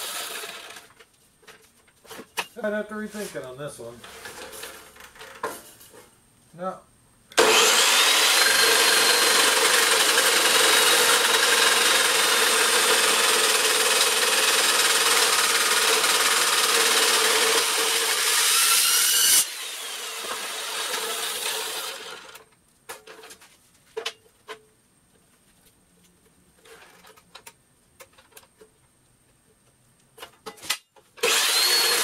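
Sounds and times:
motor winding down: 0.0s - 0.8s, 7.4s - 22.4s, 31.2s - 32.0s
chop saw grinding steel: 0.0s - 0.9s, 7.4s - 22.4s, 31.2s - 32.0s.

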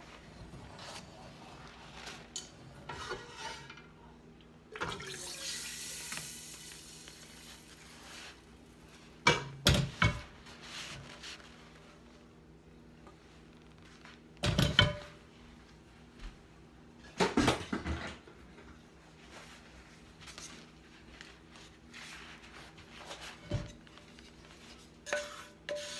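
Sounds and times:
hot roux hissing in pot: 25.1s - 25.9s.

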